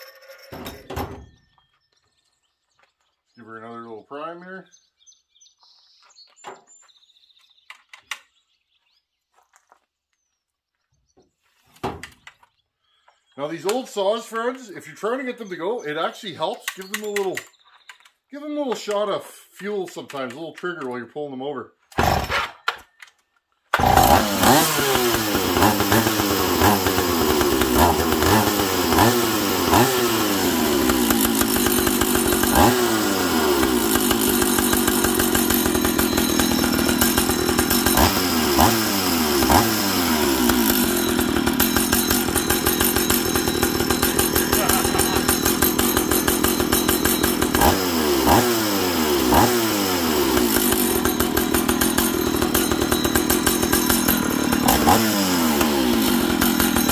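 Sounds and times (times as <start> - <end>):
chainsaw engine revving: 0.0 - 1.3, 21.9 - 22.8, 23.7 - 56.9.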